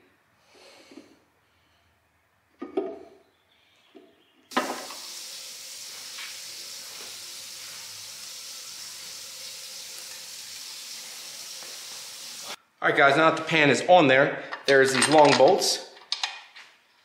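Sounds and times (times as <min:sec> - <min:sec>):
steady hiss: 0:04.5 - 0:12.6.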